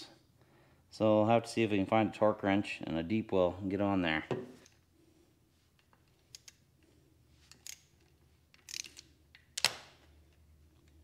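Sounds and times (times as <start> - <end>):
wrench metal clicks: 5.8 - 6.6, 7.5 - 11.0.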